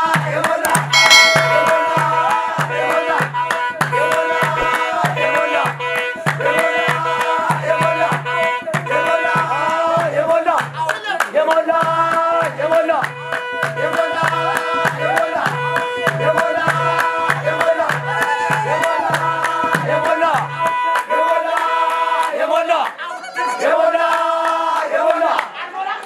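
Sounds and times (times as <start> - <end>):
singing: 0.0 - 26.0
steady beat: 1.0 - 2.4.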